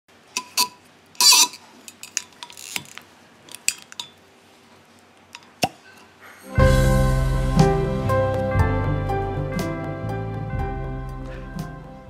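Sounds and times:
cork popping out: 0.4 - 2.9.

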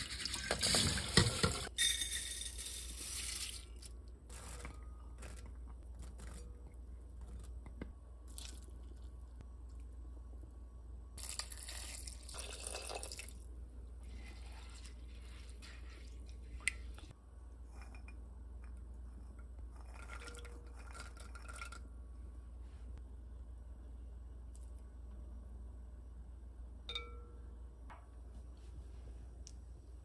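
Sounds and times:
liquid poured into pot: 11.2 - 13.5.

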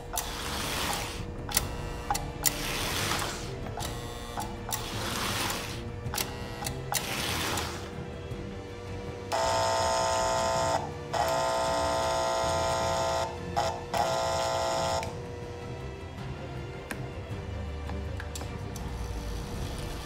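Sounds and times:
buzzy electric train horn: 9.3 - 15.2.

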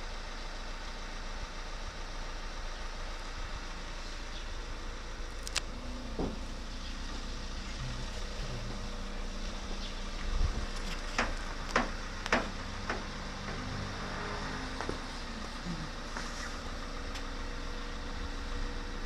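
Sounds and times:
low mechanical hum: 0.0 - 19.0
dull thump: 6.1 - 6.6.

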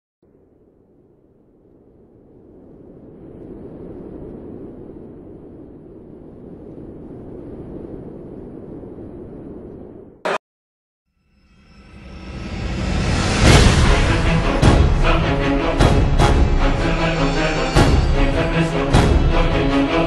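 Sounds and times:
low rumbling noise: 0.2 - 10.2, 11.9 - 20.0
short loud hit: 12.6 - 15.2.

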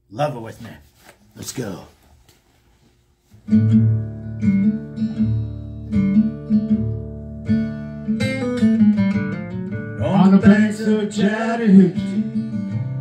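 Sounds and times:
acoustic guitar strumming chords: 3.4 - 13.0.

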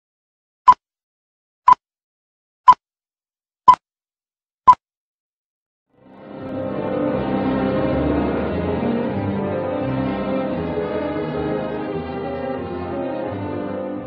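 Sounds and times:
music: 5.9 - 14.0.

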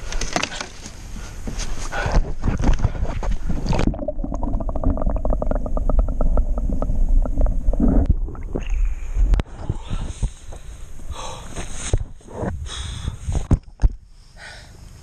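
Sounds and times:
muffled underwater rumble: 2.0 - 11.1.

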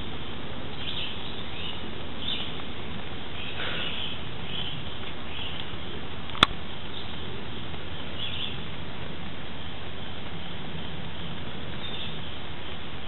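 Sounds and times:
outdoor background noise: 0.0 - 13.0
faint bird chirps: 3.3 - 5.8
sharp click: 6.3 - 6.6.

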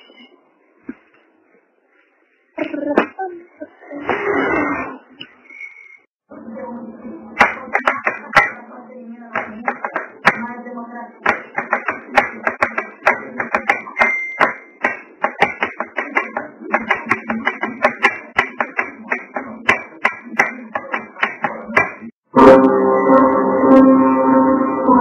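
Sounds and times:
pitched musical tones: 22.3 - 25.0
sustained ringing tone: 22.3 - 25.0.

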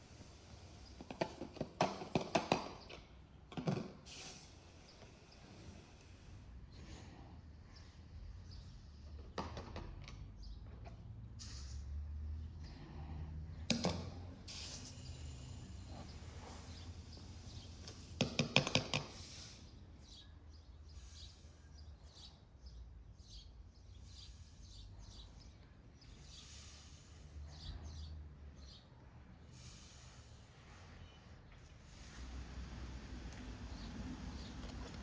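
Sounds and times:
faint bird chirps: 19.5 - 28.9.

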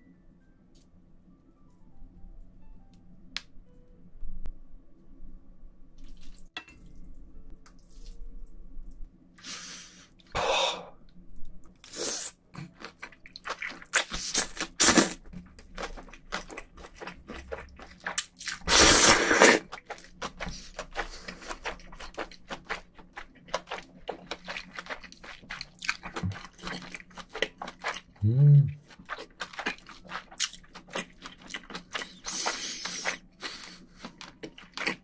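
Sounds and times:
chewing and crunching: 11.8 - 35.0
wet noodle slurps: 18.5 - 22.2.

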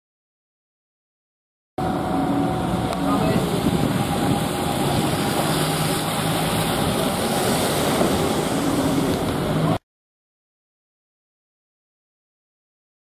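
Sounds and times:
bus engine pulling away: 1.8 - 9.8
street noise: 1.8 - 9.8.

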